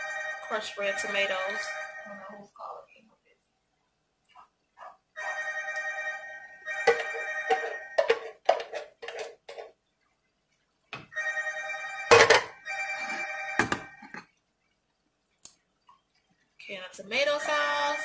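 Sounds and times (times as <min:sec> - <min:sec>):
phone ringtone: 0:00.0 - 0:02.4, 0:05.2 - 0:08.3, 0:11.1 - 0:14.1, 0:17.5 - 0:18.0.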